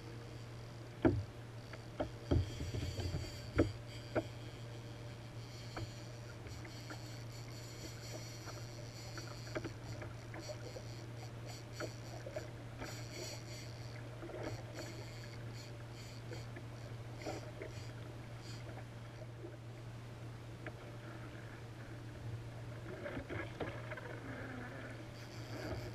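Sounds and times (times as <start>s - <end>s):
water lapping against kayak hull: 0.0s - 19.8s, 20.6s - 25.9s
steady low hum: 0.0s - 25.9s
short knocks and clicks: 1.0s - 4.4s.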